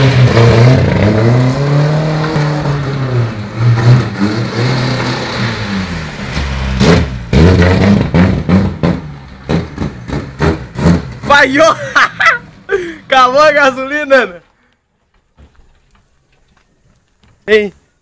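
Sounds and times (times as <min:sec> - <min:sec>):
car engine revving: 0:00.0 - 0:11.6
engine backfire bang: 0:06.3 - 0:11.2.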